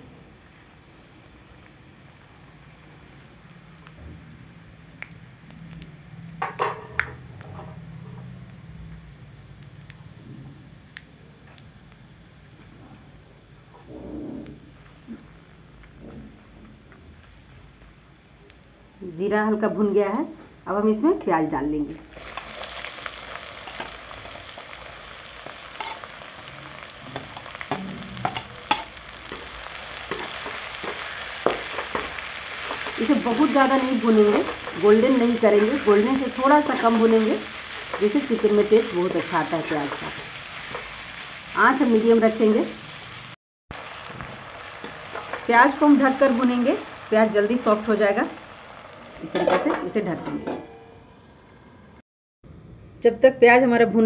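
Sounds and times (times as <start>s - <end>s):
spices sizzling in oil: 0.0s - 13.7s, 22.0s - 50.3s
metal spoon scraping a pan: 25.7s - 26.2s, 27.1s - 36.0s.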